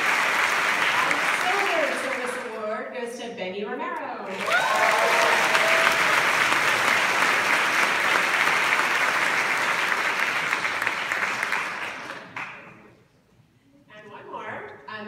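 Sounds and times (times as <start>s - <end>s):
audience applauding: 0.0s - 2.5s, 4.3s - 12.9s.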